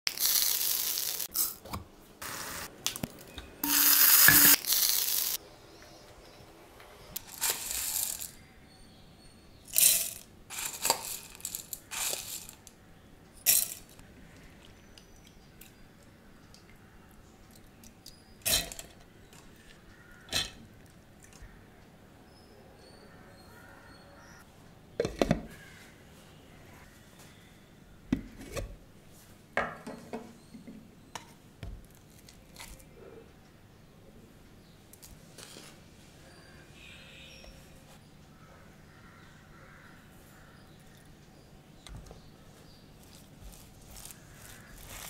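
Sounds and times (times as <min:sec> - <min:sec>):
grains clattering in metal jar: 0:00.1 - 0:01.6, 0:03.6 - 0:05.4, 0:07.2 - 0:08.4, 0:09.8 - 0:12.7.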